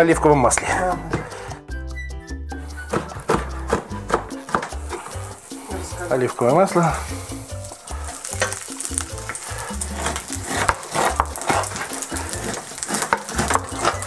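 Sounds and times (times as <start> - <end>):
fat sizzling in a frying pan: 4.4 - 14.0.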